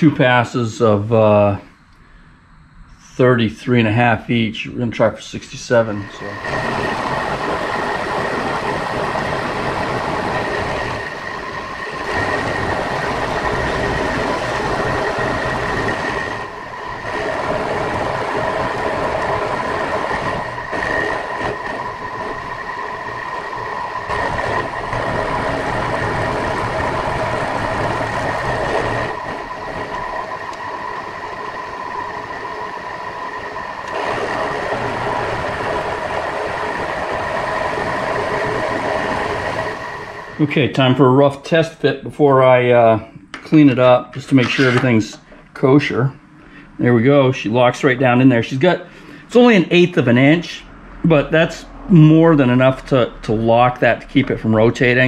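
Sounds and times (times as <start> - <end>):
milling machine cutting metal: 5.7 - 40.6, 43.3 - 45.3.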